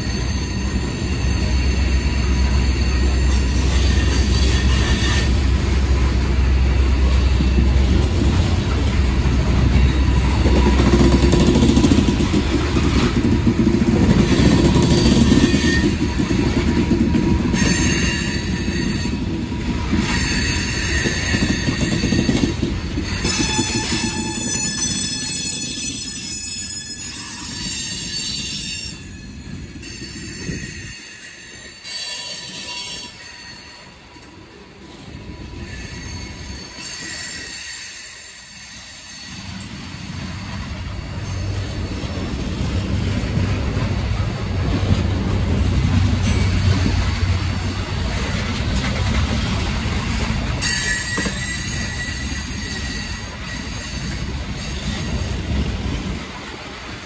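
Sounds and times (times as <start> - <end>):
high-pitched wheel squeal: 0.0 - 5.5, 14.2 - 16.6, 17.5 - 19.3, 19.9 - 34.0, 35.2 - 42.2, 50.6 - 55.4
train wheels rumbling over rails: 0.0 - 57.0.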